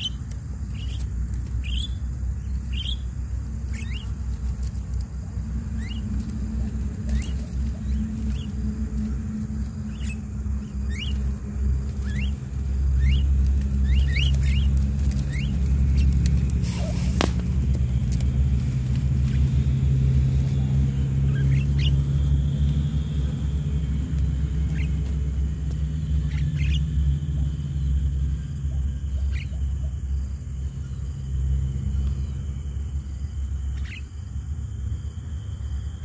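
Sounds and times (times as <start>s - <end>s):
bird chirps: 0.0s - 34.4s
low rumble: 0.0s - 36.0s
sharp snap: 16.6s - 17.8s.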